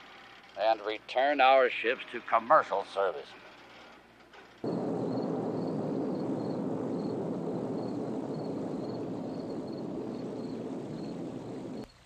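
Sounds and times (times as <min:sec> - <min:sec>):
spaceship engines rumbling drone: 0:04.7 - 0:11.9.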